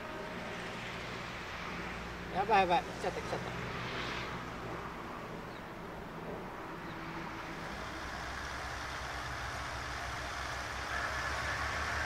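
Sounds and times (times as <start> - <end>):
diesel railcar engine rumble: 5.6 - 12.0.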